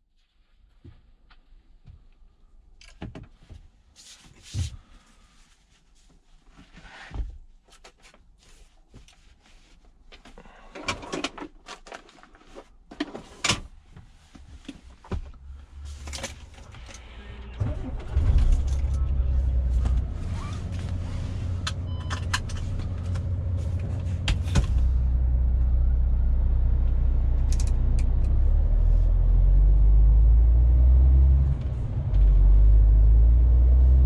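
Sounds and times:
objects handled in truck cab: 0:06.6 - 0:25.0
cloth wiping dashboard: 0:19.4 - 0:21.9.

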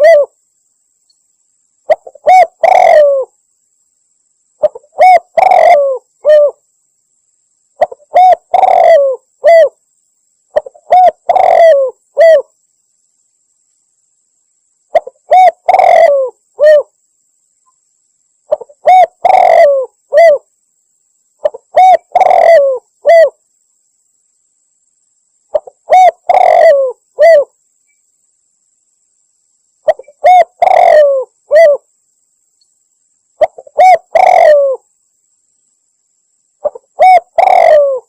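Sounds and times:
dove cooing: 0:00.0 - 0:00.4, 0:01.9 - 0:03.3, 0:04.6 - 0:06.6, 0:07.8 - 0:09.8, 0:10.5 - 0:12.5, 0:14.9 - 0:16.9, 0:18.5 - 0:20.5, 0:21.4 - 0:23.4, 0:25.5 - 0:27.6, 0:29.8 - 0:31.9, 0:33.4 - 0:34.9, 0:36.6 - 0:38.0.

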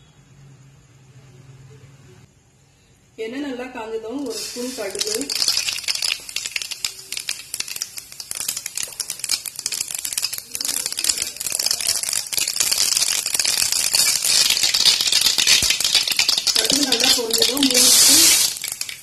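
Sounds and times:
oil crackling and sizzling: 0:04.2 - 0:19.0.

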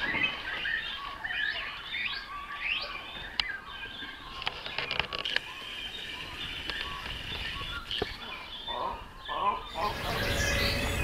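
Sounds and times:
chicks squeaky begging calls: 0:06.0 - 0:11.0.

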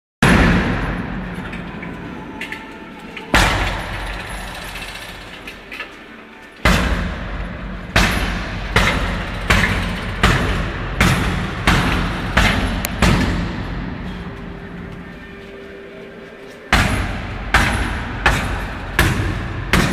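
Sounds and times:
kicks smacking punching bag: 0:08.0 - 0:13.8, 0:16.7 - 0:19.9.

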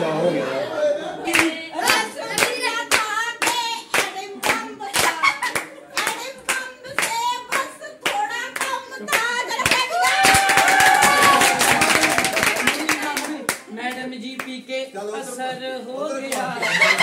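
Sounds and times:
people singing along: 0:00.8 - 0:05.4
group clapping in time: 0:01.3 - 0:14.6.

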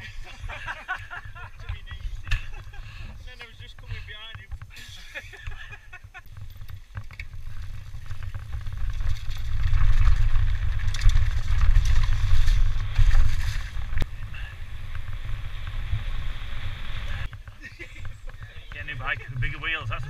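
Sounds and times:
bike rattling: 0:00.0 - 0:20.0
bike tyres on dirt trail: 0:00.0 - 0:20.0
wind buffeting microphone: 0:05.3 - 0:20.0.

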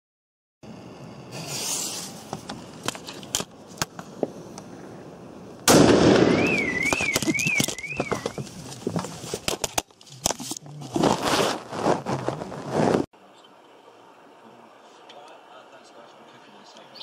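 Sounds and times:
firecracker bang: 0:05.6 - 0:08.2
car alarm warbling: 0:06.3 - 0:08.4.

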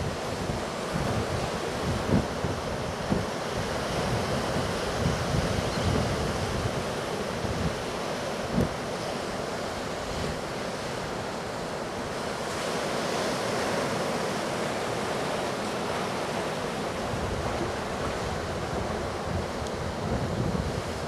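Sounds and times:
wind buffeting microphone: 0:00.0 - 0:08.8, 0:17.0 - 0:21.0
ocean surf breaking: 0:00.0 - 0:21.0.

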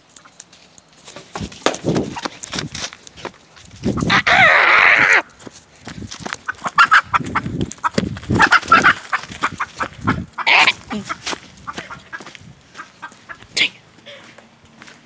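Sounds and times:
footsteps through grass and leaves: 0:00.0 - 0:15.0
chicken squawking: 0:03.9 - 0:05.3, 0:06.4 - 0:13.9.

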